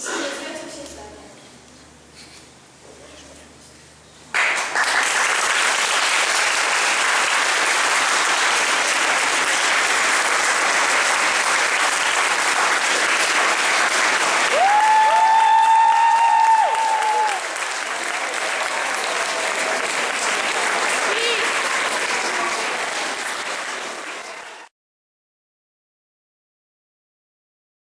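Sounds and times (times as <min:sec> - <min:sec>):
audience applause: 0:04.3 - 0:24.7.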